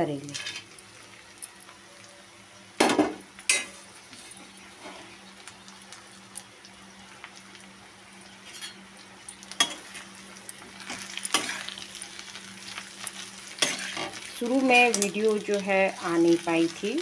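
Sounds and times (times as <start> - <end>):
vegetables sizzling in oil: 0.0 - 17.0.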